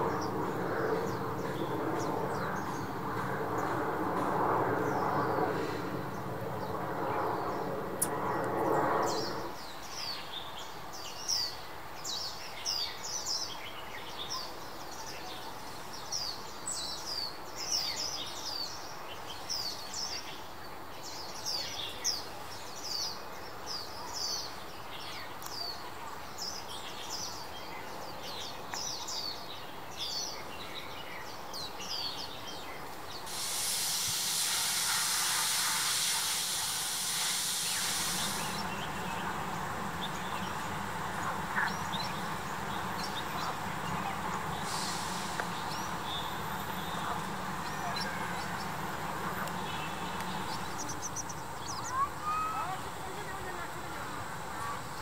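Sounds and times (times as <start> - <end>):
birds chirping: 0.0 - 10.2, 31.2 - 55.0
loud steady hiss: 33.1 - 55.0.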